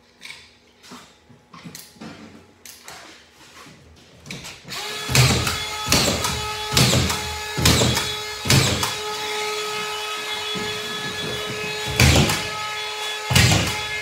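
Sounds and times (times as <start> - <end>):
screws driven into drywall: 4.7 - 14.0.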